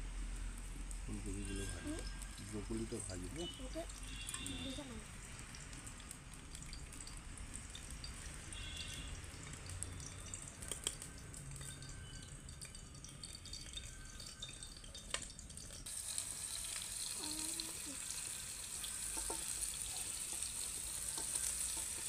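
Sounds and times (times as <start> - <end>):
metallic clinks of steel bowls: 8.6 - 15.9.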